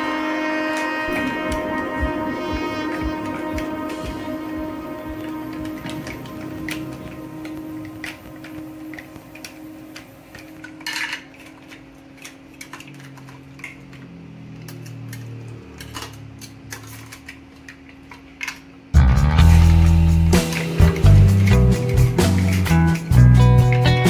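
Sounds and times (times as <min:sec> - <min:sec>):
mussel shells clattering in a pot: 0:10.4 - 0:18.8.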